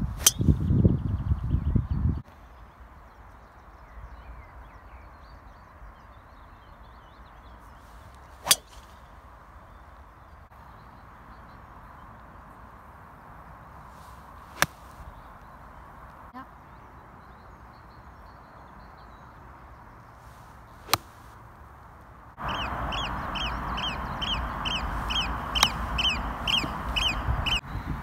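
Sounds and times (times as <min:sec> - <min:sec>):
driver striking golf ball: 0:08.4 - 0:08.9
iron clicking golf ball: 0:14.6 - 0:15.0, 0:20.9 - 0:21.2, 0:25.6 - 0:25.9.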